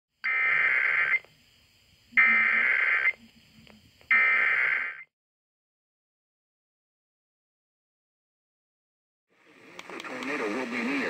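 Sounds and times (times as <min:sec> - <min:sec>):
digital data tone bursts: 0:00.2 - 0:01.3, 0:02.1 - 0:03.3, 0:04.1 - 0:05.1.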